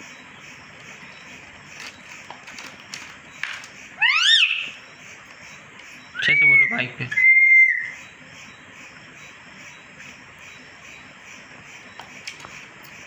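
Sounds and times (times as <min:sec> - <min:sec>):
parrot whistle: 0:04.0 - 0:04.8, 0:06.2 - 0:08.1.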